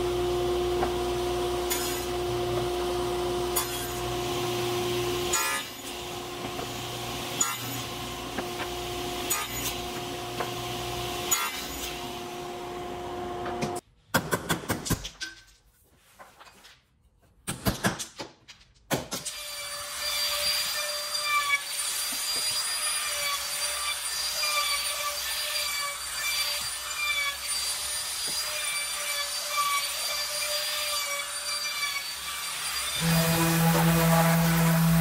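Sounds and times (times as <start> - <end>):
router cutting wood: 0.0 - 13.8, 19.5 - 35.0
trim router whining: 32.8 - 35.0.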